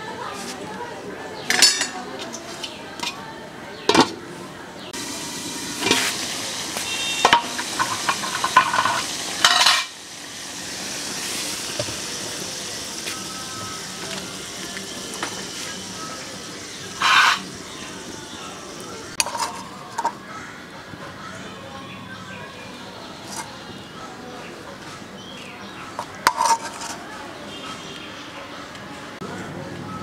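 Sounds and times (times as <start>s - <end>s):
metal clinks and scrapes on pan: 1.5s - 2.0s, 7.2s - 10.0s, 17.0s - 17.5s, 26.0s - 27.0s
curry simmering with sizzle: 5.0s - 20.2s.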